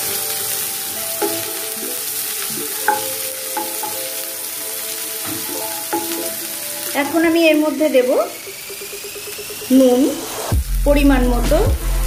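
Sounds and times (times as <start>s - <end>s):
onions sizzling in oil: 0.0s - 12.0s
wooden spatula knocking on pan: 1.2s - 1.7s, 2.8s - 4.2s, 5.2s - 7.2s.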